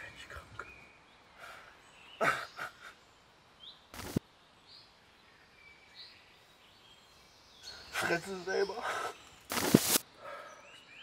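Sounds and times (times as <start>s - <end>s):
man breathing heavily: 1.4s - 2.9s, 10.1s - 10.8s
sharp burst of noise: 9.5s - 10.0s.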